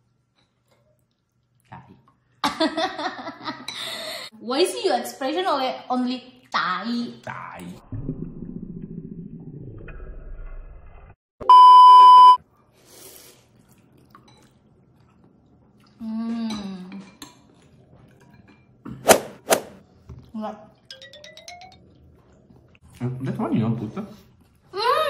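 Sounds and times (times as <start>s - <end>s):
censor bleep: 11.4s - 12.4s.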